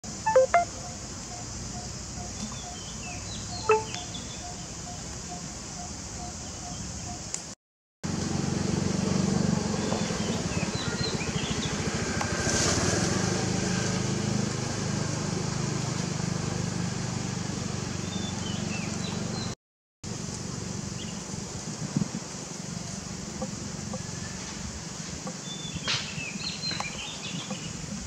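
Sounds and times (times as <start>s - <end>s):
faint high chirps: 0.2s - 4.6s.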